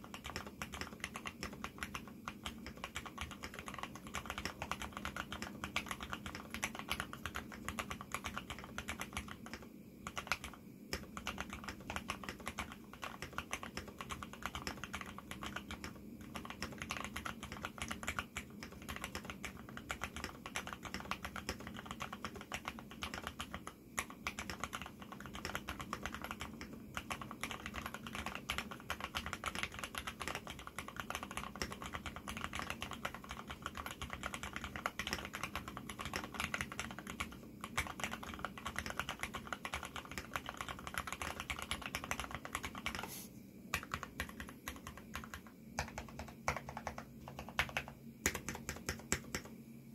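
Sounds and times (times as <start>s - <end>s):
mechanical keyboard typing: 0.0s - 43.1s, 43.7s - 49.6s.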